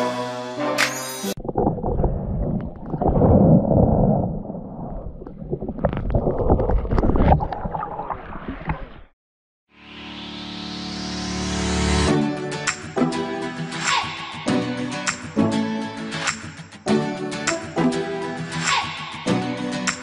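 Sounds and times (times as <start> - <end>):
underwater knocks and clicks: 1.4 - 8.8
sea water sloshing and gurgling: 1.4 - 9.1.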